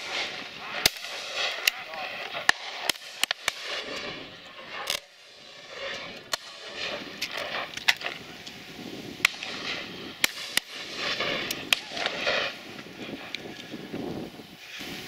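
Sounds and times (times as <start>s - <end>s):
shotgun reports: 0.0s - 5.1s
background rush: 0.0s - 15.0s.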